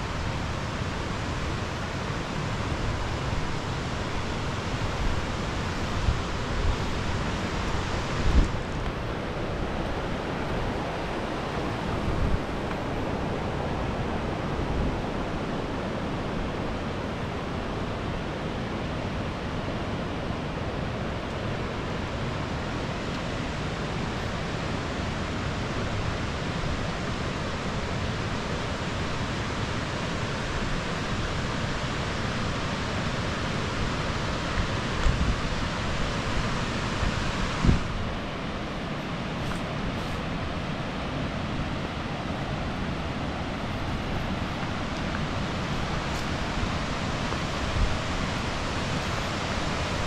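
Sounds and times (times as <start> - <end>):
waterfall rushing: 0.0 - 50.0
wind bumps on microphone: 7.9 - 8.8, 34.6 - 35.6, 36.2 - 38.2.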